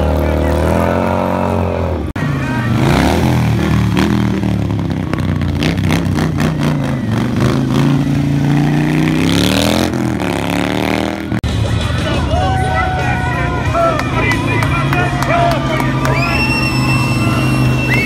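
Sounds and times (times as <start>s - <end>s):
motorcycle engine revving: 0.0s - 12.2s.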